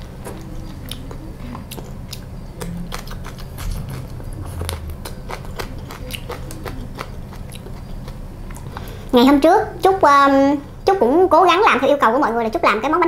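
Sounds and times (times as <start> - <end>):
person chewing crunchy food: 0.0 - 9.1.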